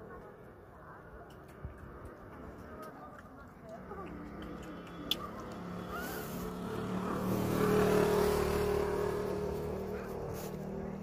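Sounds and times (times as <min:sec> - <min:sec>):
motor vehicle passing: 0:03.8 - 0:11.0.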